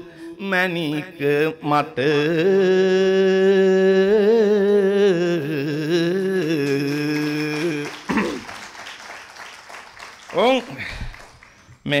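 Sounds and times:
man singing unaccompanied: 0:00.0 - 0:08.3.

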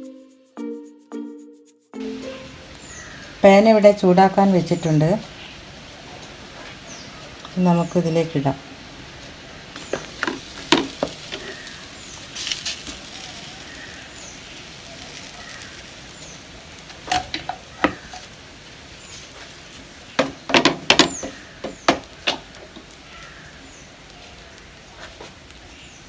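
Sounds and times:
dough sizzling on griddle: 0:02.0 - 0:26.0
sharp knocks and clicks: 0:20.2 - 0:22.9.

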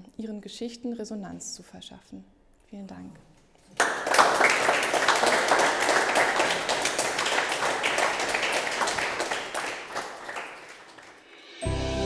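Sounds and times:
audience clapping: 0:03.7 - 0:11.5.

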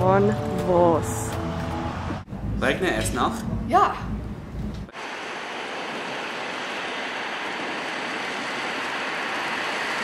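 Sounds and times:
torrential rain pouring: 0:04.8 - 0:10.0.

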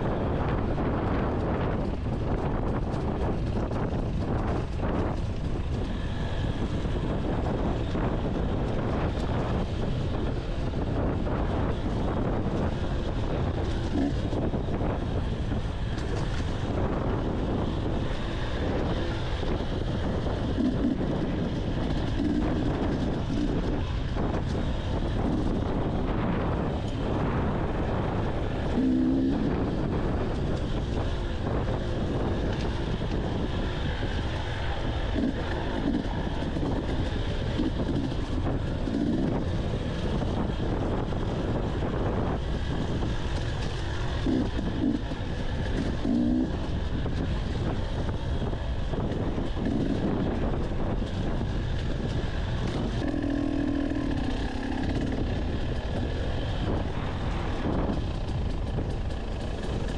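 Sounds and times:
wind noise on microphone: 0:00.0 - 0:59.9
dirt bike engine revving: 0:11.0 - 0:14.9, 0:15.9 - 0:58.2.

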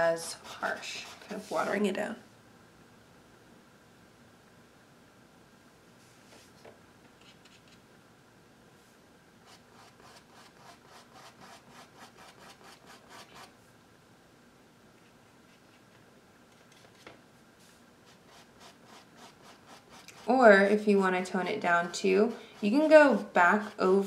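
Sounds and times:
paintbrush rubbing on canvas: 0:00.3 - 0:01.8, 0:17.6 - 0:20.4.

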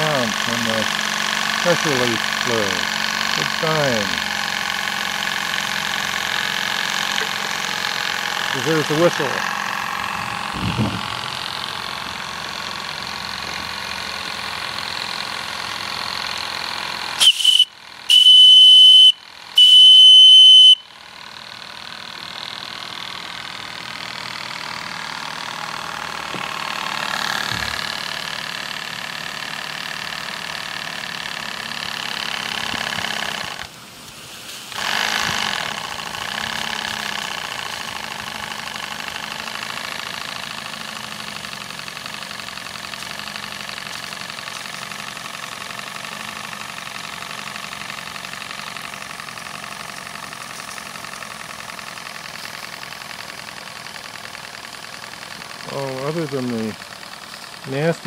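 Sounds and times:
model steam engine running: 0:00.0 - 0:58.0
steam whistle blasts: 0:17.2 - 0:20.8.

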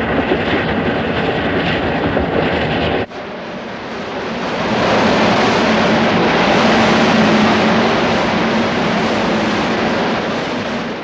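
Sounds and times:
steam train rushing past: 0:00.0 - 0:11.0.

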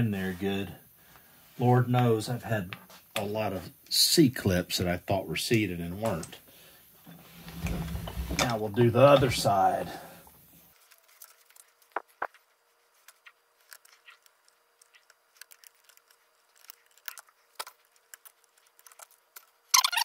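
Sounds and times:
rustling handling noise: 0:07.0 - 0:20.0.

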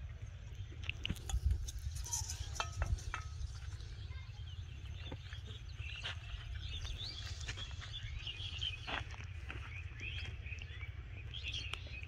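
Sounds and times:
small birds chirping: 0:00.0 - 0:12.0
steady low rumble: 0:00.0 - 0:12.0.

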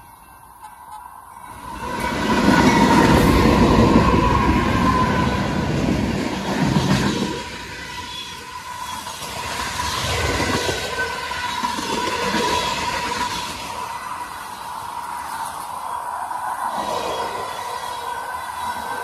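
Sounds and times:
crossing warning bell ringing: 0:00.0 - 0:06.0
diesel locomotives passing: 0:00.0 - 0:19.0.

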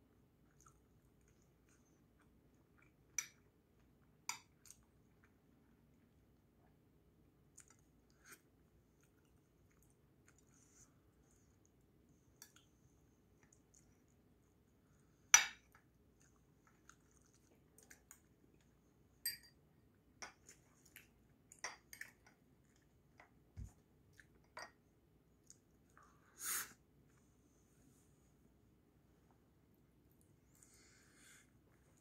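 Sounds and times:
faint chewing: 0:00.1 - 0:19.1, 0:19.9 - 0:24.6.

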